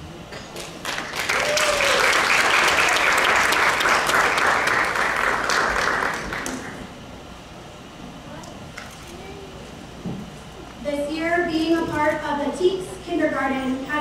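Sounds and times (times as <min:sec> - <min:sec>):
audience applauding: 0:00.6 - 0:06.9.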